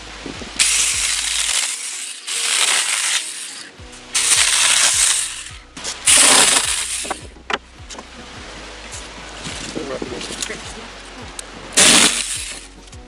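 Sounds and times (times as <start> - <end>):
electric chainsaw cutting wood: 0.6 - 7.3, 11.8 - 12.7.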